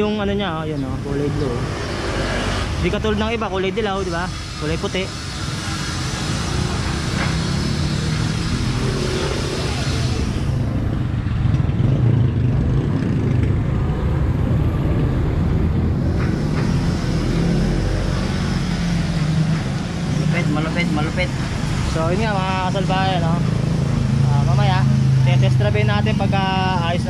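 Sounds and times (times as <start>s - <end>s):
low rumble of road traffic: 0.0s - 27.0s.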